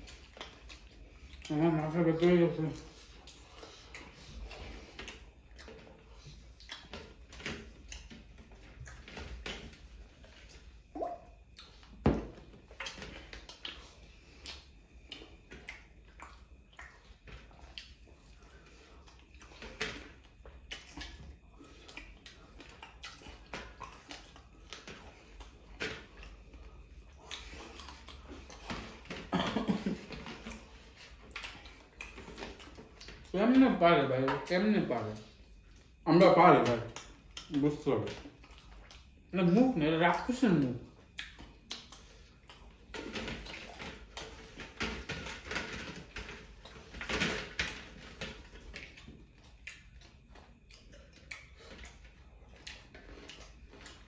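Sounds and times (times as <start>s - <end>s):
chewing smacks: 0.0s - 1.5s, 2.8s - 9.1s, 12.6s - 29.2s, 30.2s - 33.3s, 38.3s - 39.3s, 41.0s - 44.5s, 48.5s - 54.0s.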